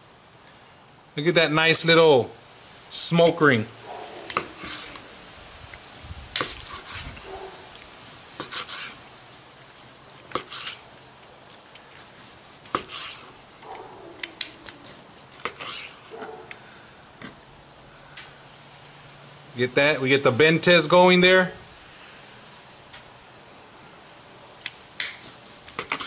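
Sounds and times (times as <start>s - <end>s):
knife slicing through meat: 4.2s - 5.1s, 6.4s - 9.0s, 9.8s - 10.9s, 12.0s - 16.5s, 25.0s - 26.0s.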